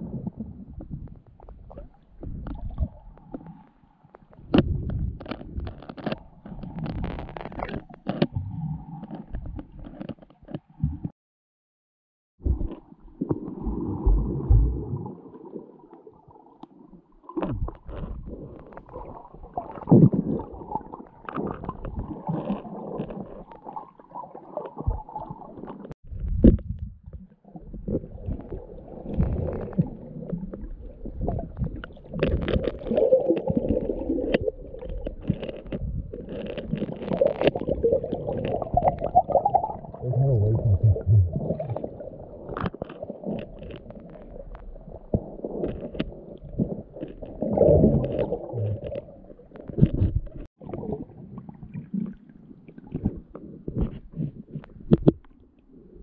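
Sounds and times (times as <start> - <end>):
muffled underwater rumbling: 0.0 - 11.1, 12.4 - 56.0
bubbling: 12.4 - 26.5, 27.1 - 55.3.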